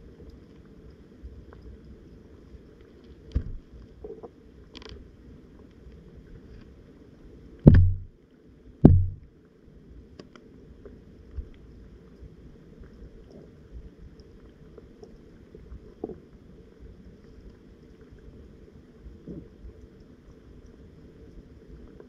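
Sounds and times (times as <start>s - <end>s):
muffled underwater rumble: 0.0s - 22.0s
heavy dull thumps: 7.7s - 8.1s, 8.8s - 9.2s
light knock: 7.7s - 8.1s, 8.8s - 9.2s.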